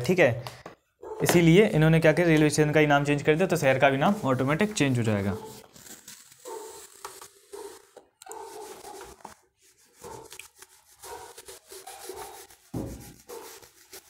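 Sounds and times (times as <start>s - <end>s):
duster rubbing a whiteboard: 3.3s - 14.0s.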